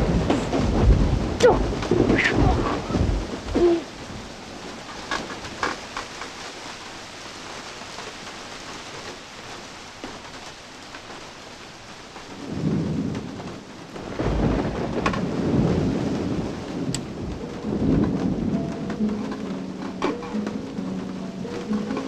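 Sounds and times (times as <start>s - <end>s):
rolling thunder: 0.0s - 5.2s, 12.3s - 22.0s
steady rain: 0.0s - 22.0s.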